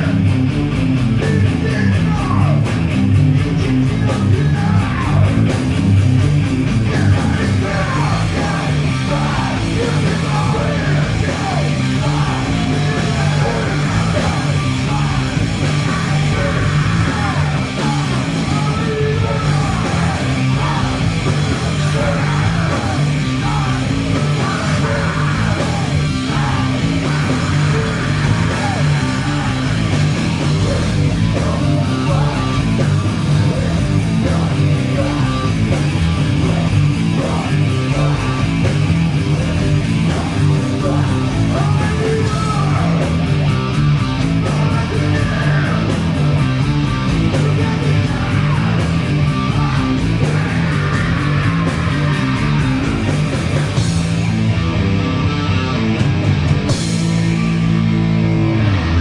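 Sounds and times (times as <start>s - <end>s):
loud rock music: 0.0s - 59.0s.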